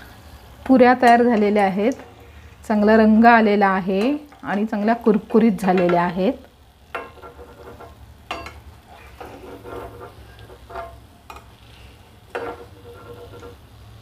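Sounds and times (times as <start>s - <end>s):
faint oil sizzling: 0.0s - 14.0s
metal spoon clinking on pan: 6.9s - 8.7s, 9.8s - 11.5s, 12.3s - 13.6s.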